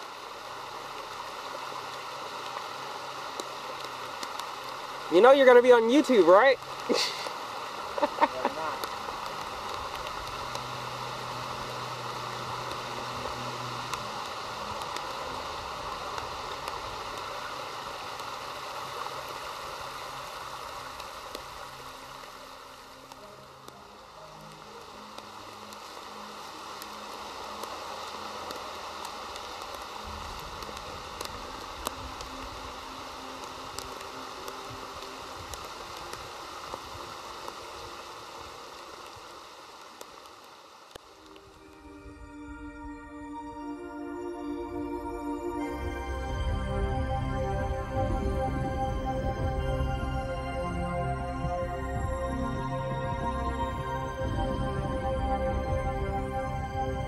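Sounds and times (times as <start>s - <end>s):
raindrop ticks: 0.0s - 57.0s
stream rushing over rocks: 0.0s - 57.0s.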